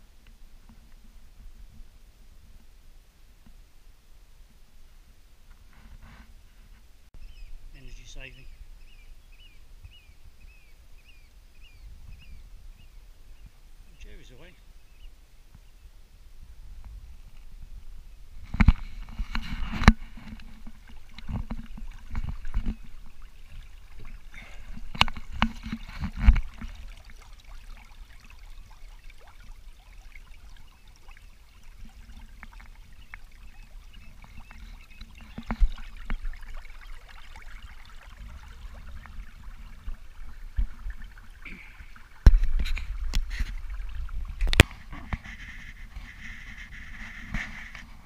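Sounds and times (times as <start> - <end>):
water lapping along a hull: 16.6 - 48.0.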